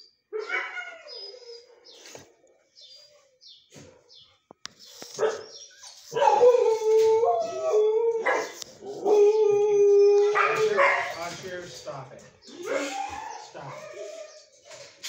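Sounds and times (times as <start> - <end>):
dog howling: 6.2 - 11.2, 12.5 - 14.5
dog whining: 12.5 - 14.8.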